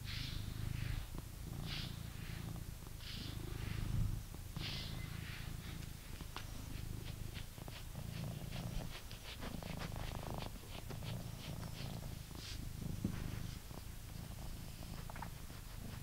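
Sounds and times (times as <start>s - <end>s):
brush strokes through fur: 0.0s - 16.0s
cat purring: 0.0s - 16.0s.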